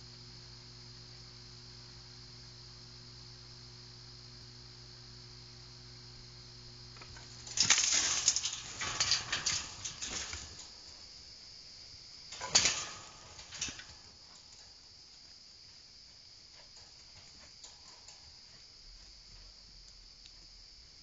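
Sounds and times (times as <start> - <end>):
faint steady hum: 0.0 - 21.0
cage rattling: 6.9 - 11.3, 12.3 - 19.4
metal trap door clanking shut: 7.1 - 10.8, 12.3 - 14.7.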